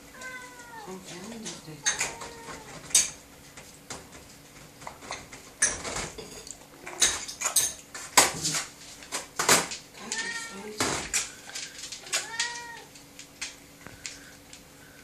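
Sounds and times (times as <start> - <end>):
clinks on a steel food bowl: 1.1 - 3.2.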